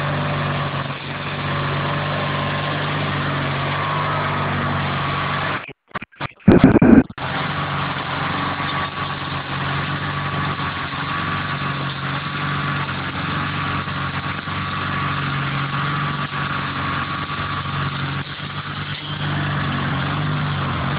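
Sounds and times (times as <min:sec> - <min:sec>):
small engine running: 0:00.0 - 0:05.6, 0:06.6 - 0:20.9
thin high whine: 0:05.6 - 0:07.2.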